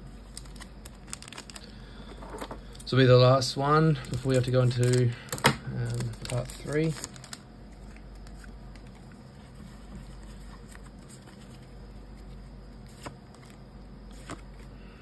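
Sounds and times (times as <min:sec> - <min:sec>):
steady low hum: 0:00.0 - 0:15.0
trading cards rustling and tapping: 0:04.0 - 0:14.6.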